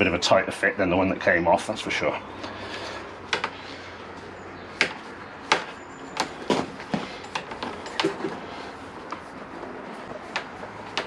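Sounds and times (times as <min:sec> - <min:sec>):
handlebar grip clicks and knocks: 0:04.8 - 0:08.5.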